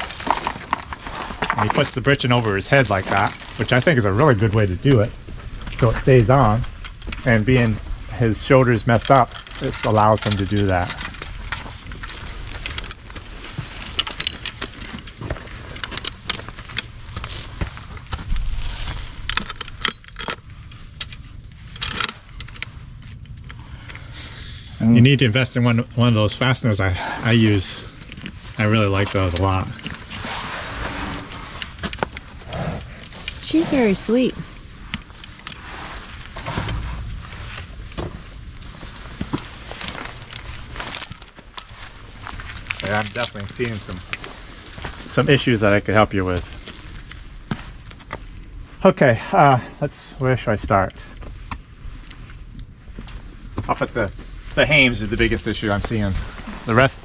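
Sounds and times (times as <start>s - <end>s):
harness metal fittings clinking: 0.0s - 5.1s, 5.8s - 16.9s, 38.5s - 44.3s.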